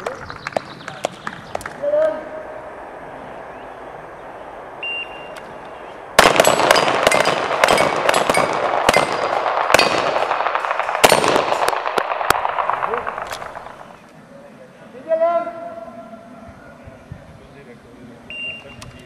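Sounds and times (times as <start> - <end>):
shot timer beep: 4.8 - 5.4
handguns firing: 6.2 - 14.0.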